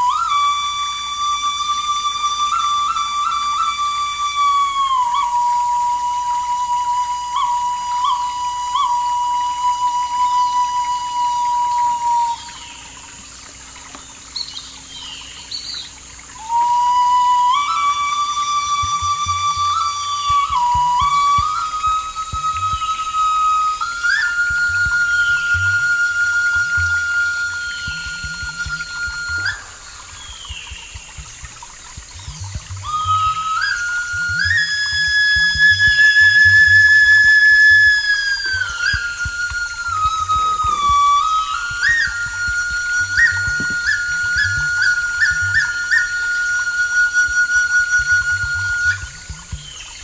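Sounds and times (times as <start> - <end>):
flute long note: 0.0 - 12.8, 16.3 - 50.0
birds chirping: 11.9 - 16.5, 26.6 - 35.0, 38.1 - 46.5, 48.3 - 50.0.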